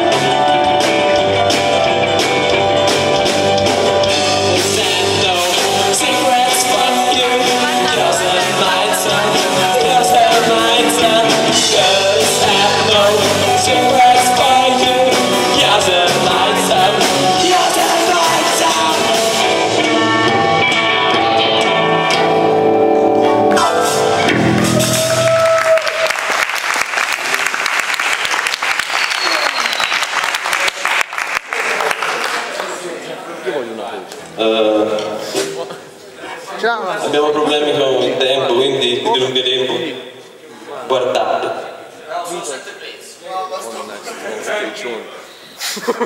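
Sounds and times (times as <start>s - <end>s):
live rock band playing: 0.0s - 25.8s
person singing: 3.9s - 22.3s
audience applause: 24.4s - 33.0s.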